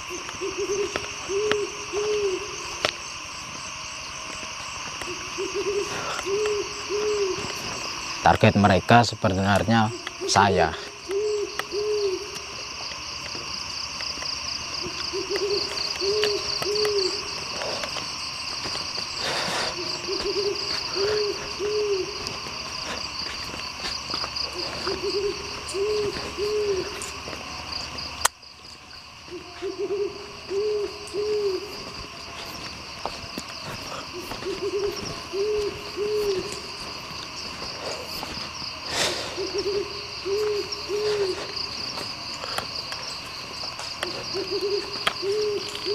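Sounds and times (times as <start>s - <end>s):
owl-like hoots: 0.0s - 2.8s, 5.0s - 7.9s, 9.8s - 12.6s, 14.8s - 17.9s, 19.2s - 23.2s, 24.4s - 27.3s, 29.3s - 32.6s, 33.7s - 37.0s, 38.9s - 41.8s, 44.0s - 45.9s
night insects chorus: 0.0s - 45.9s.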